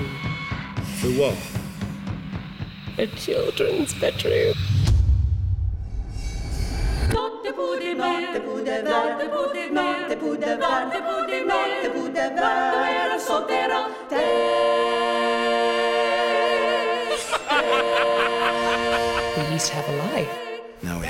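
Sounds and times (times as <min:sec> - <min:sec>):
unaccompanied choir singing: 0:07.1 - 0:21.0.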